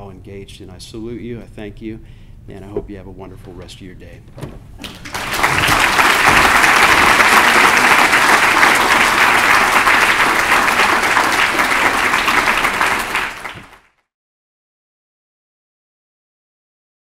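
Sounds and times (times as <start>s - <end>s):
audience applauding: 4.8s - 14.0s.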